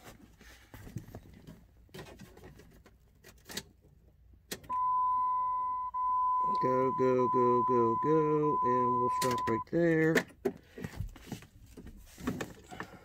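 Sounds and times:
steady electronic warning tone: 0:04.7 - 0:09.6.

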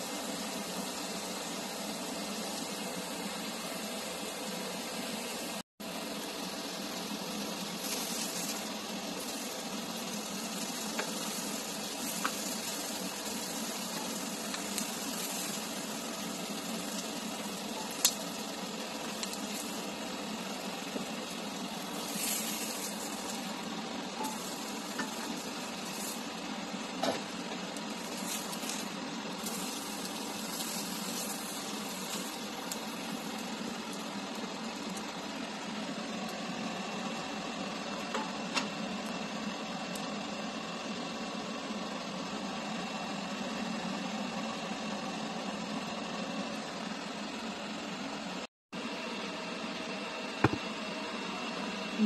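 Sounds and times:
chicken sizzling in a pan: 0:00.0 - 0:38.3.

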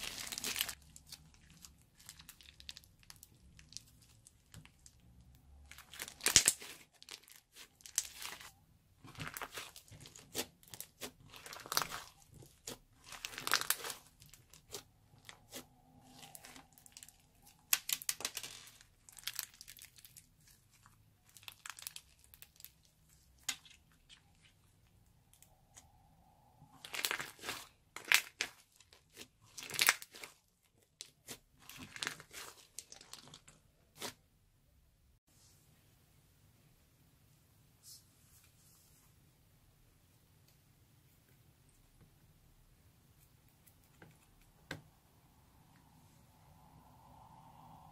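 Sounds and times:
slime crackling and crunching: 0:00.0 - 0:24.7, 0:26.8 - 0:34.2.

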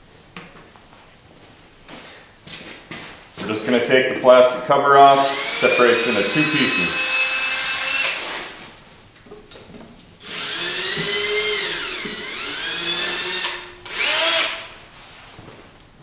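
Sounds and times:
power drill whining: 0:05.1 - 0:08.4, 0:10.2 - 0:14.7.

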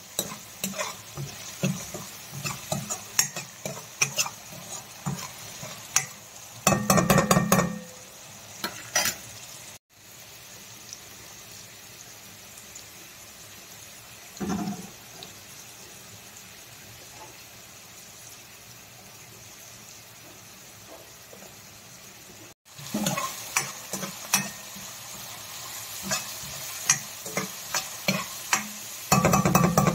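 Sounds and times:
food sizzling in oil: 0:00.0 - 0:29.9
spoon scraping metal pan: 0:00.1 - 0:07.6, 0:26.0 - 0:29.9.

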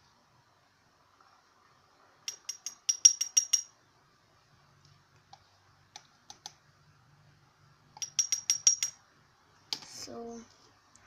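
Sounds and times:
object tapping ceramic bowl: 0:02.3 - 0:03.7, 0:08.0 - 0:09.0.

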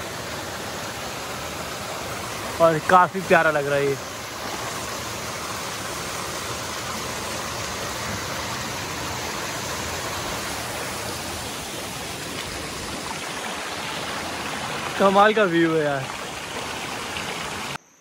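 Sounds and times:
waterfall rushing: 0:00.0 - 0:17.8.

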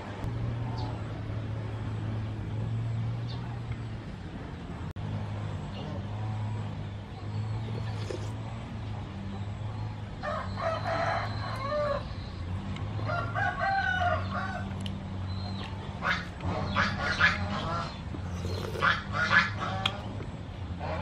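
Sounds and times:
rooster crowing: 0:10.2 - 0:12.1, 0:13.0 - 0:14.7
chickens clucking: 0:14.1 - 0:21.0.

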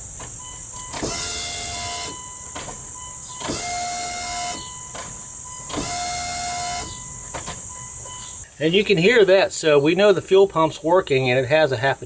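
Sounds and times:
fuel pump whirring whine: 0:00.0 - 0:08.5.

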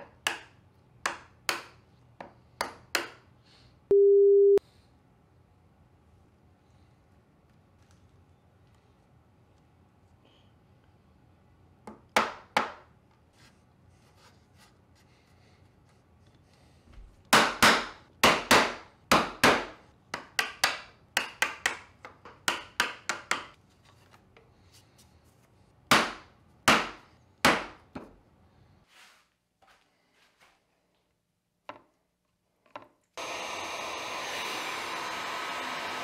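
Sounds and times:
mallet striking a chisel in wood: 0:17.3 - 0:23.6.

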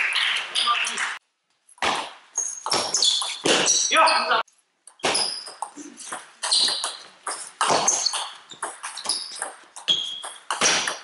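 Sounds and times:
shoes squeaking on floor: 0:02.3 - 0:11.0.

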